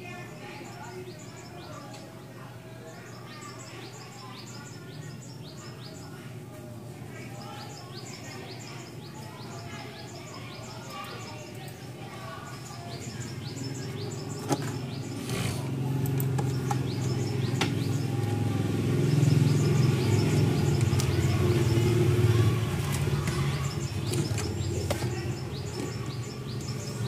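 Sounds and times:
small birds chirping: 0.0s - 27.0s
low vehicle engine rumble: 13.2s - 27.0s.

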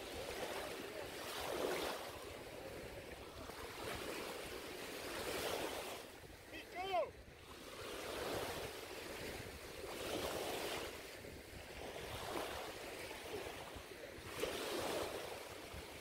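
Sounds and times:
small waves lapping in shallow water: 0.0s - 16.0s
wind on microphone: 7.2s - 16.0s.

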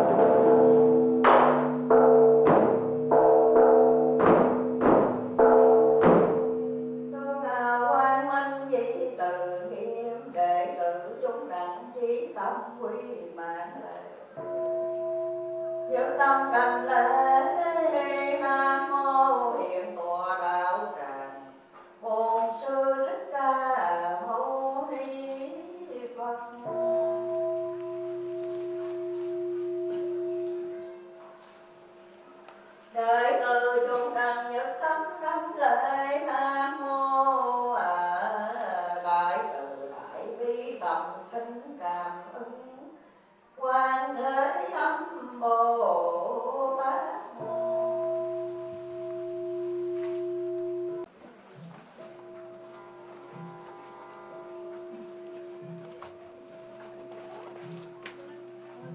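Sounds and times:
bowl bell ringing: 0.0s - 7.2s, 14.4s - 17.6s, 26.7s - 32.4s, 47.4s - 51.1s, 52.0s - 58.9s
long steady tone: 47.4s - 51.1s, 52.0s - 58.9s.

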